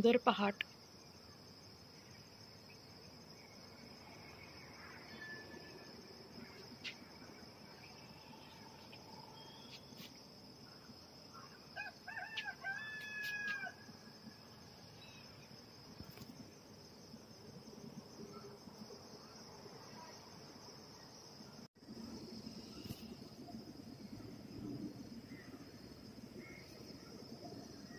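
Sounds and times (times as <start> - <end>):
high drone of insects: 0.0 - 27.9
rooster crowing: 11.8 - 13.9.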